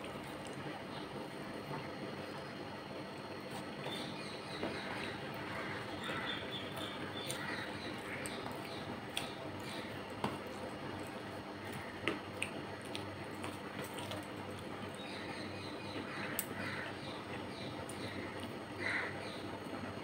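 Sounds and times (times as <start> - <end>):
chewing and wet mouth sounds: 5.0 - 15.2, 17.8 - 18.6.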